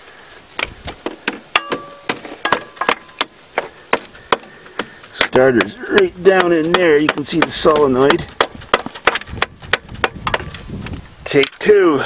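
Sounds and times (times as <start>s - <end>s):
hand tool striking metal: 1.5s - 3.3s, 5.2s - 10.5s.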